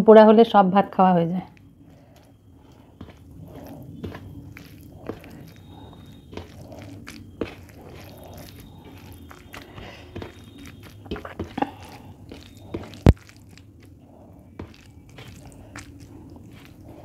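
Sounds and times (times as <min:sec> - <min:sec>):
chewing: 0:01.5 - 0:17.0
wet squish of food mixed by hand: 0:01.6 - 0:17.0.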